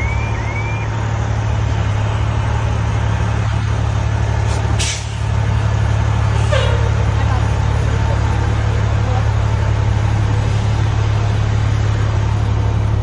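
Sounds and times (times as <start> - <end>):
electronic siren: 0.0 - 1.0
diesel engine running: 0.0 - 13.0
air hiss: 4.5 - 5.3.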